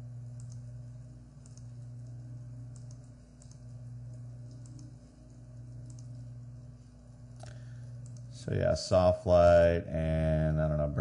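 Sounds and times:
steady low hum: 0.0 - 11.0
light computer clicks: 0.3 - 0.7, 1.4 - 6.3, 7.3 - 8.3.

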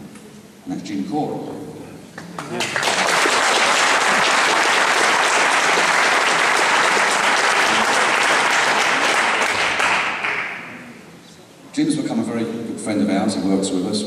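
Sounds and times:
audience applauding: 2.4 - 10.7.

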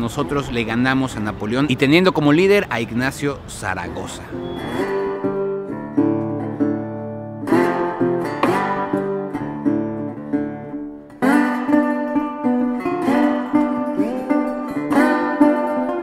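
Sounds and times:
acoustic guitar melody: 4.2 - 16.0
strummed guitar chords: 4.3 - 16.0.

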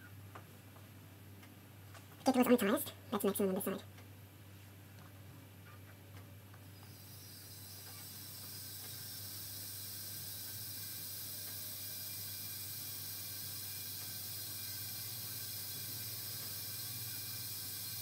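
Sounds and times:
kettle water heating hiss: 6.3 - 18.0.

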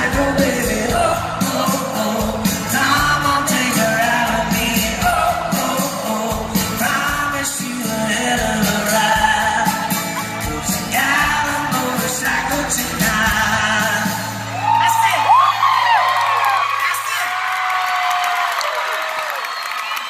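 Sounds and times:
man singing: 0.0 - 14.5
strummed acoustic guitars: 0.0 - 15.1
audience whooping: 14.4 - 20.0.

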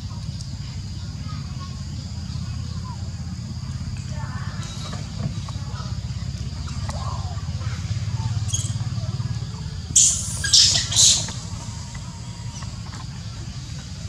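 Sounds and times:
steady low hum: 0.0 - 14.0
monkey screeching: 8.5 - 8.8, 10.0 - 11.9.

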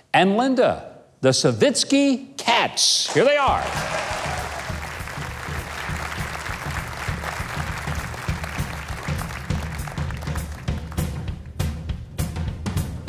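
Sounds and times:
audience applauding: 3.1 - 11.4
band playing upbeat tune: 3.2 - 13.0.

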